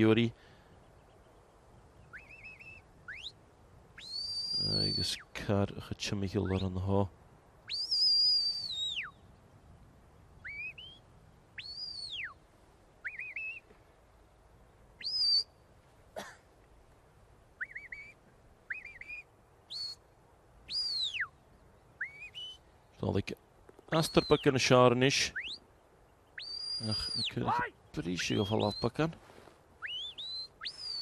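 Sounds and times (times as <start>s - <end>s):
high whistles: 2.1s - 3.4s, 4.0s - 5.2s, 7.7s - 9.1s, 10.4s - 11.0s, 11.6s - 12.4s, 13.0s - 13.7s, 15.0s - 15.5s, 17.6s - 20.0s, 20.7s - 21.3s, 22.0s - 22.6s, 26.4s - 27.6s, 29.8s - 31.0s.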